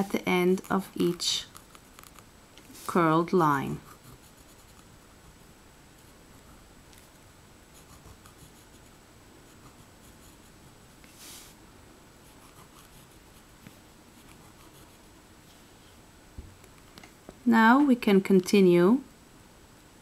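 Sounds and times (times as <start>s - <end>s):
pen scratching on paper: 3.8s - 4.9s, 7.7s - 10.6s, 12.3s - 13.6s, 14.2s - 15.1s.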